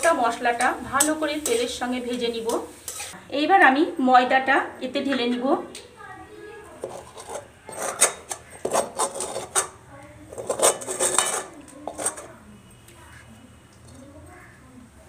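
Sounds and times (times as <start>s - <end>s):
spoon scraping metal pan: 0.0s - 3.2s, 6.8s - 12.4s.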